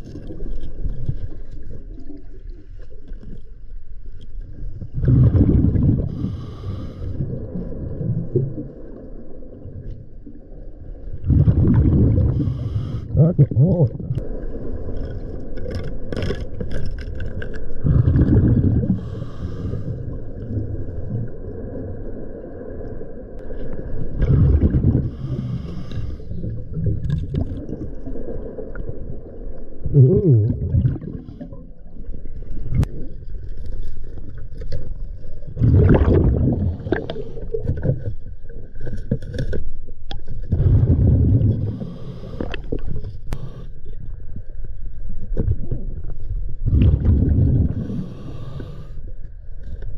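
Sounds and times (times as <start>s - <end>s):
bubbly regulator exhalations: 5.0s - 8.6s, 11.2s - 14.3s, 17.8s - 21.2s, 24.2s - 28.2s, 29.8s - 31.8s, 35.6s - 38.0s, 40.5s - 43.4s, 46.6s - 48.8s.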